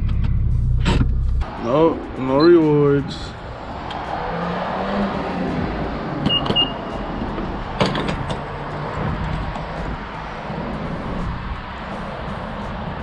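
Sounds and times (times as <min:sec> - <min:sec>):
high electronic beeps: 0:06.2 - 0:07.0.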